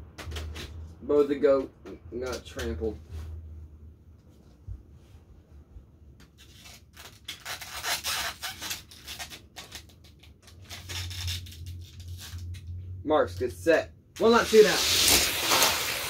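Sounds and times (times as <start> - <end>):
low steady hum: 0.0 - 7.1, 9.8 - 14.3
toy cars scraping on track: 14.4 - 16.0.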